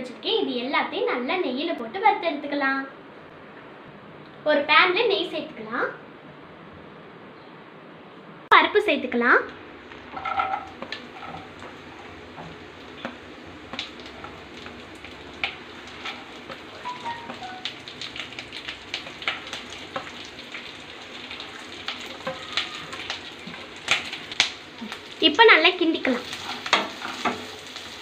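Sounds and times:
sharp pops and crackles: 0:09.5 - 0:25.2
nuts frying in hot ghee: 0:09.5 - 0:28.0.

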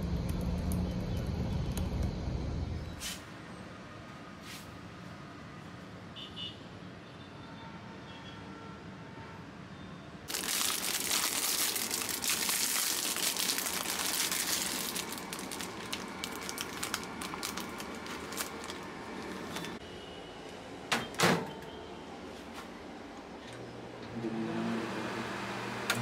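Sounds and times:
packaging crinkling and rustling: 0:10.3 - 0:19.8.

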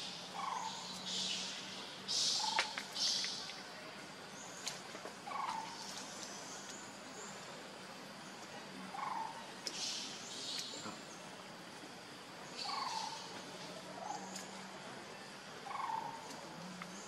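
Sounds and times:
faint steady hum: 0:00.0 - 0:17.0
soft animal calls: 0:15.6 - 0:16.8.

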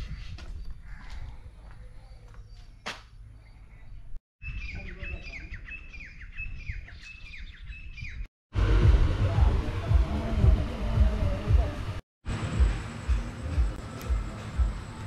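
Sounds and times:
low outdoor rumble: 0:08.6 - 0:15.0.

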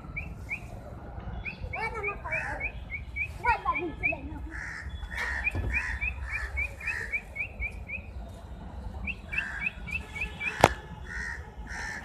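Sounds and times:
crows cawing: 0:04.5 - 0:07.2, 0:09.4 - 0:09.7, 0:10.5 - 0:12.0.

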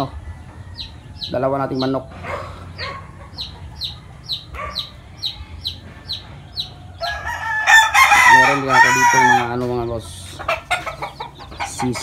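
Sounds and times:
chickens clucking: 0:00.0 - 0:12.0
rooster crowing: 0:07.0 - 0:09.6.

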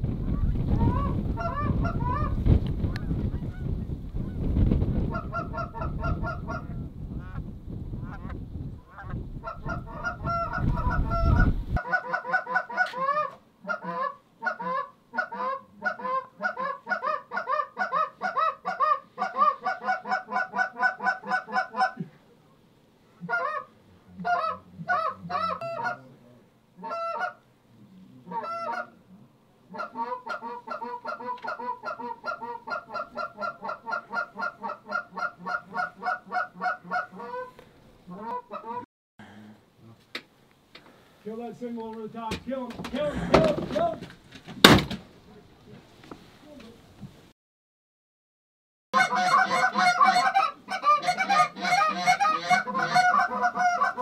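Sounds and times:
wind rumble on microphone: 0:00.0 - 0:11.8
geese honking: 0:08.0 - 0:22.0, 0:23.2 - 0:27.4, 0:28.2 - 0:29.0, 0:29.7 - 0:38.8, 0:49.0 - 0:54.0.

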